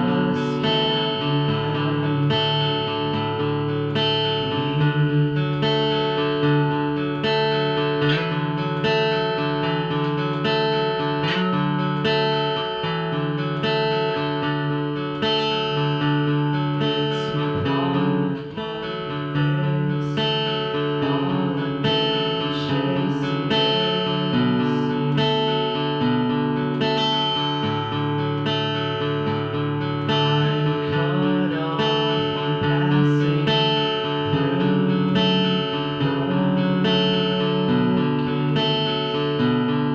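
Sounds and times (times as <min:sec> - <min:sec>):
acoustic guitar strumming chords: 0:00.0 - 0:39.9.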